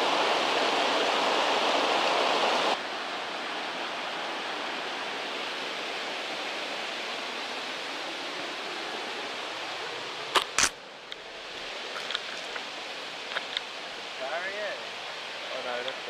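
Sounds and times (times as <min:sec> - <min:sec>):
water rushing over rocks: 0:00.0 - 0:16.0.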